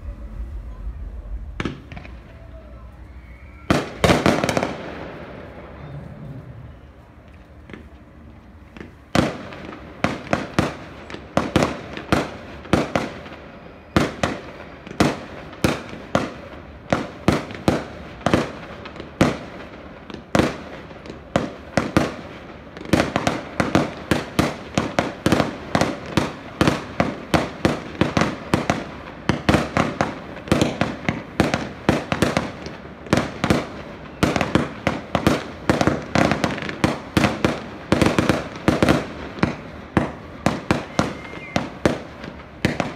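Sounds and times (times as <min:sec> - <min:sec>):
fireworks bangs: 0:00.0 - 0:42.9.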